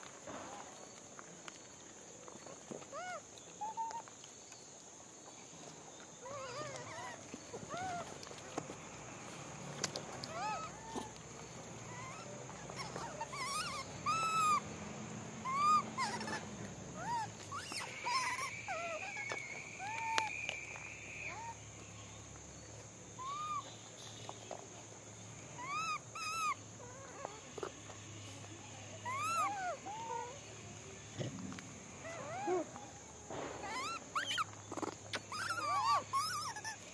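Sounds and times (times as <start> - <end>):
constant high hiss: 0.0 - 36.9
macaque coo calls: 2.8 - 4.1, 6.2 - 8.4, 10.2 - 14.7, 15.4 - 20.6, 21.2 - 21.6, 23.2 - 23.7, 25.6 - 27.9, 29.0 - 30.4, 31.1 - 36.9.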